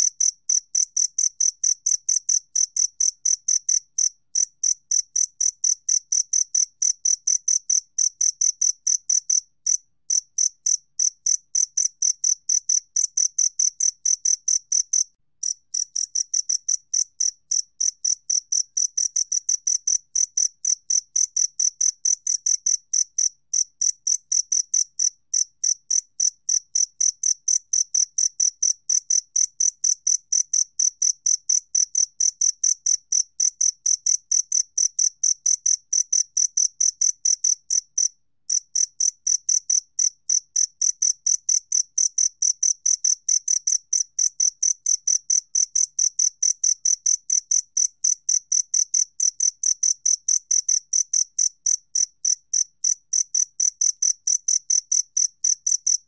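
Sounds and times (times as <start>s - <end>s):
cricket chirping: 0.0s - 56.0s.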